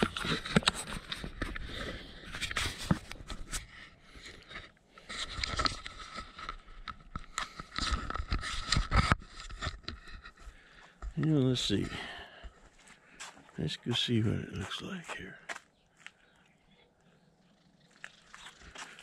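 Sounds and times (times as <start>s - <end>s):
footsteps on concrete: 10.4s - 16.2s, 18.3s - 19.0s.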